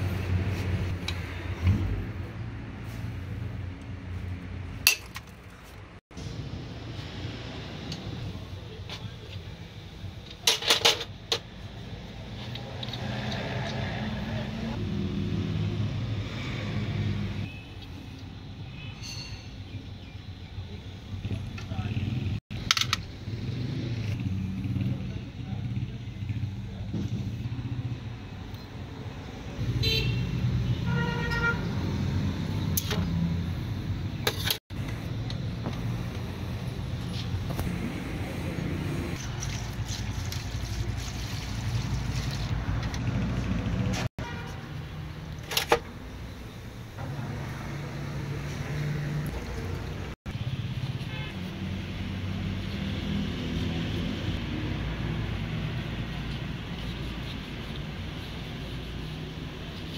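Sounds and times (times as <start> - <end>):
car horn: 29.7 - 31.8, 44.2 - 44.8, 51.0 - 51.4.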